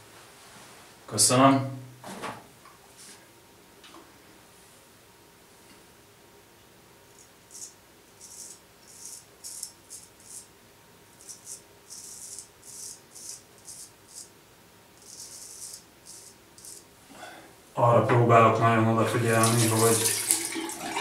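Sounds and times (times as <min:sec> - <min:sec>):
razor scraping stubble: 0:07.2 - 0:10.5, 0:11.2 - 0:14.3.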